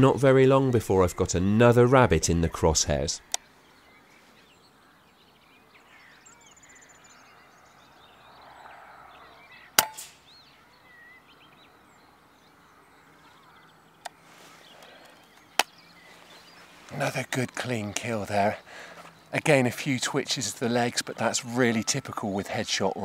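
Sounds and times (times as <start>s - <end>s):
faint birdsong: 0.0s - 23.0s
air rifle shot: 9.8s - 10.3s.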